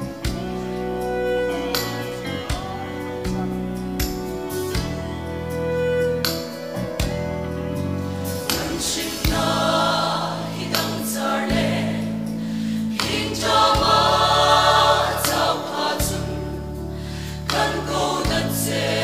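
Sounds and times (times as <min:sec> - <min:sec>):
low accompaniment chords: 0:00.0 - 0:19.0
mixed choir singing: 0:08.2 - 0:19.0.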